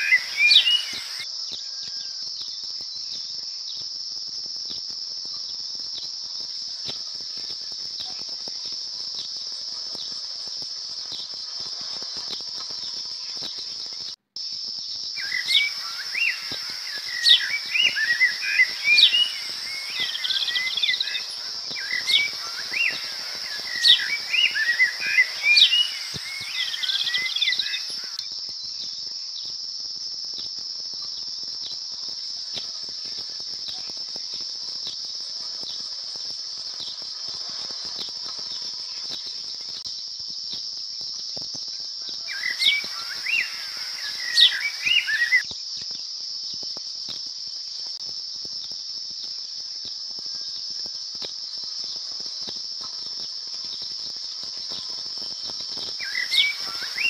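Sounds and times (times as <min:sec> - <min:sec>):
small bird chirping: 0:00.0 - 0:01.2, 0:09.0 - 0:28.2, 0:42.2 - 0:45.5, 0:53.0 - 0:57.0
high-pitched insect drone: 0:00.0 - 0:57.0.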